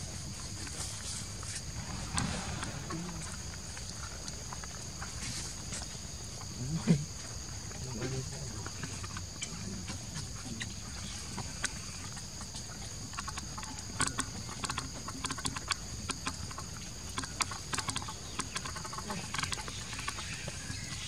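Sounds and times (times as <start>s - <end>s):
steady low rumble: 0.8s - 5.7s.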